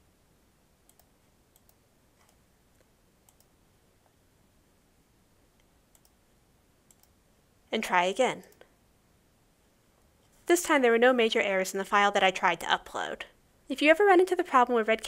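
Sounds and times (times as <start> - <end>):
computer mouse clicks: 0.9 - 3.6, 5.6 - 6.2, 6.9 - 7.2.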